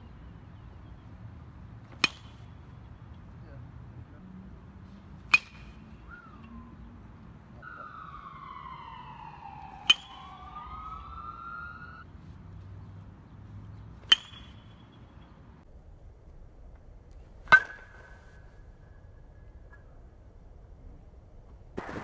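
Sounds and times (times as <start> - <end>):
baseball bat hitting ball: 1.8 - 2.5, 5.2 - 6.6, 8.2 - 11.1, 14.0 - 14.8
siren wailing: 6.0 - 12.0.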